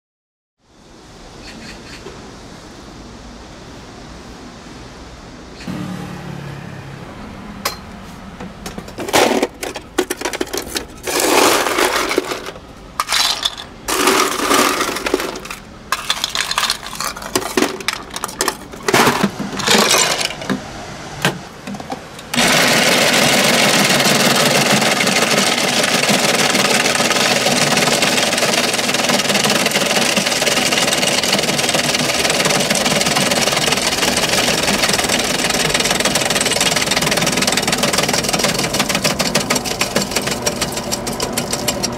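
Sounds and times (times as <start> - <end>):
clattering and knocks of handling: 8.4 - 20.6
ice shaver motor grinding: 11.0 - 17.2, 22.4 - 41.9.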